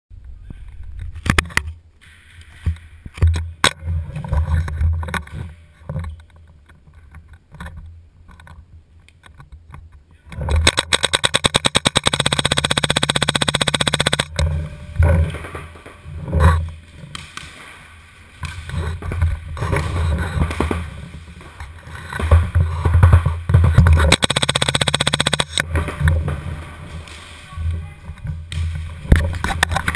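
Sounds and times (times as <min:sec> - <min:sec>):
paintball gun rapid firing: 0:10.6 - 0:14.4, 0:23.8 - 0:26.1.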